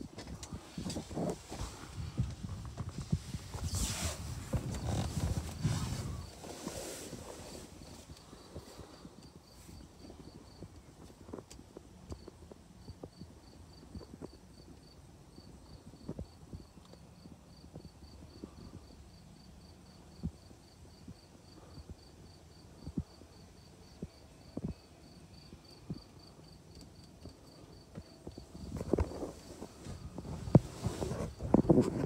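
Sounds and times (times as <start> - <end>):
faint knocks and handling rustle: 0.0 - 14.8, 25.9 - 32.0.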